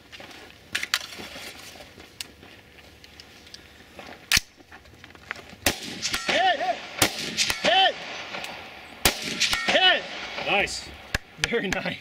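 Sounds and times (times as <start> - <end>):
rifle shots: 5.6 - 11.3.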